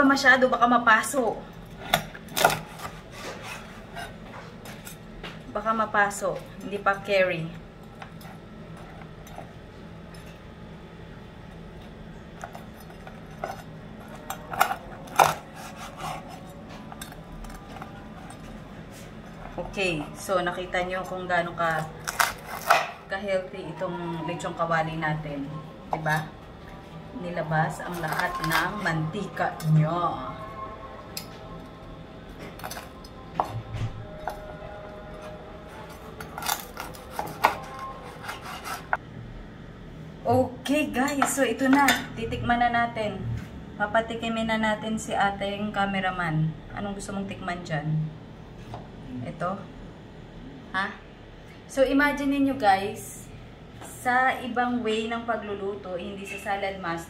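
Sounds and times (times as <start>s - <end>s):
steady low hum: 0.0s - 57.0s
crackling pork skin: 12.4s - 18.4s, 21.9s - 22.9s, 32.4s - 33.0s, 35.8s - 38.9s.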